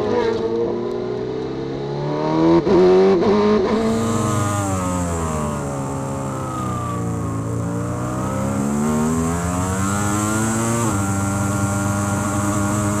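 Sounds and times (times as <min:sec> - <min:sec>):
motorcycle engine at high revs: 0:00.0 - 0:13.0
wind hiss: 0:03.8 - 0:12.7.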